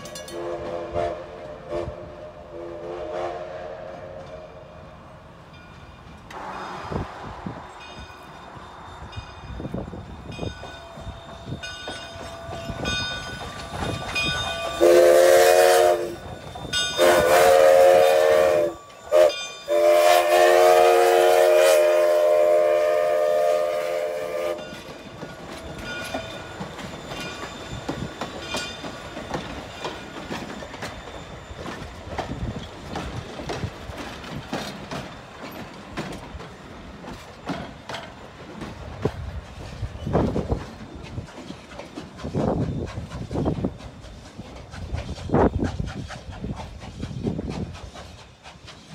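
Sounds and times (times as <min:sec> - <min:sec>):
locomotive bell ringing: 0:00.0 - 0:00.6, 0:04.3 - 0:20.4, 0:24.5 - 0:32.9
train wheels clacking on rail joints: 0:00.0 - 0:01.6, 0:09.1 - 0:48.9
steam whistle blasts: 0:00.3 - 0:04.7, 0:14.7 - 0:16.3, 0:16.9 - 0:24.6.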